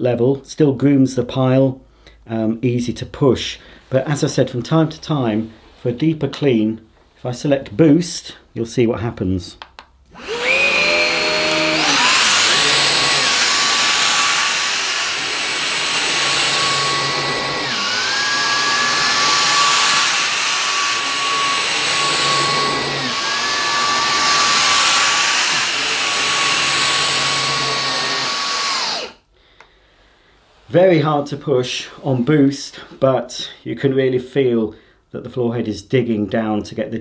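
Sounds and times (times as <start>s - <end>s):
vacuum cleaner motor whine: 10.2s - 29.2s.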